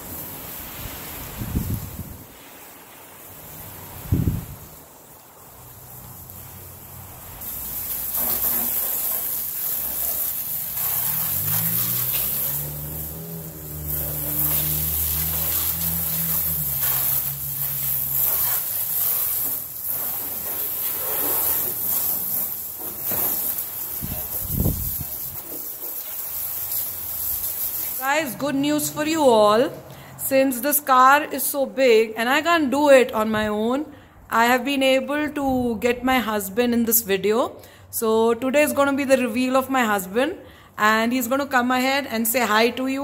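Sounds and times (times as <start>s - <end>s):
hose spray hissing on car: 0.0s - 29.2s.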